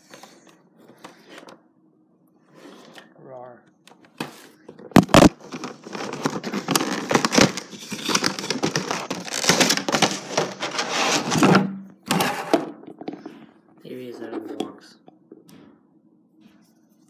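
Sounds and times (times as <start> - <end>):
packaging crinkling: 4.9 - 11.4.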